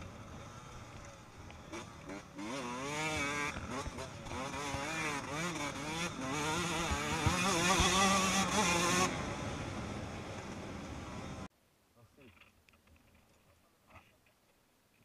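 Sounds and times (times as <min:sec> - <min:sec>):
motocross bike engine revving: 0:00.0 - 0:11.5.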